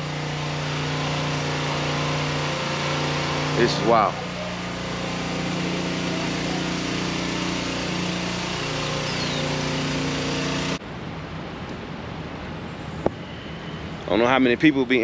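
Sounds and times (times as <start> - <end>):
steady engine drone: 0.0 - 10.8.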